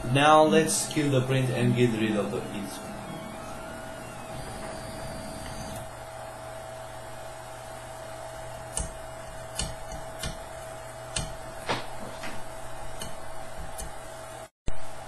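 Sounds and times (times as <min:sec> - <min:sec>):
printer fan hum: 0:00.0 - 0:14.5
print lines clicking and crackling: 0:08.5 - 0:14.0.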